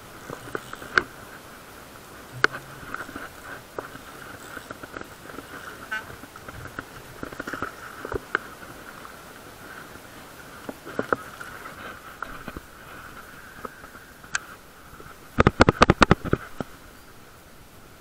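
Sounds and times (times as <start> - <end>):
fishing tackle tapping and knocking: 2.3 - 4.8.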